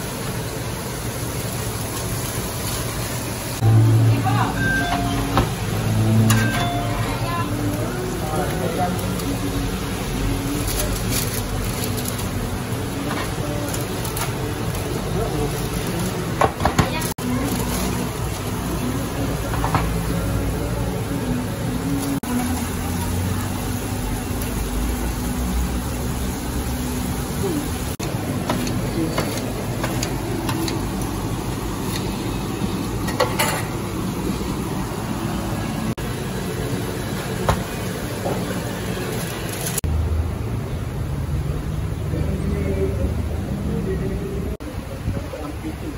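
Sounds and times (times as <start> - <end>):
kitchen din: 3.6 - 20.4, 27.3 - 34.6.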